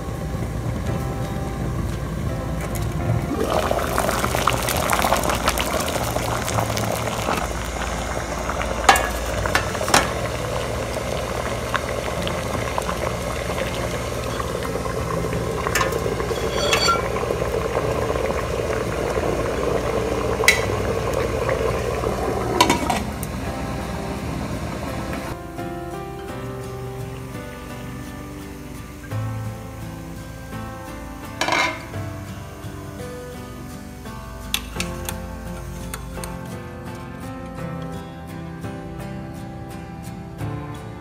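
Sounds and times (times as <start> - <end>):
water boiling and bubbling: 0.0 - 36.5
lid placed on pot: 15.7 - 17.2, 20.5 - 20.7, 22.6 - 23.1, 31.4 - 31.9.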